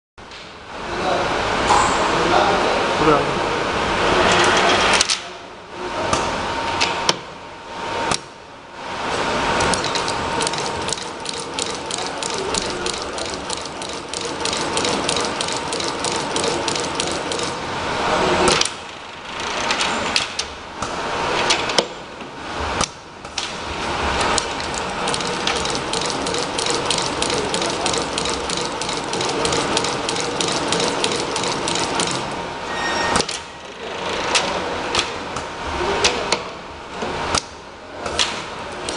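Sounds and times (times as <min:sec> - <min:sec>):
faint steady machine whine: 0:05.5 - 0:20.7, 0:23.7 - 0:36.0
assembly machinery clicking rapidly: 0:09.6 - 0:17.7, 0:24.2 - 0:32.4.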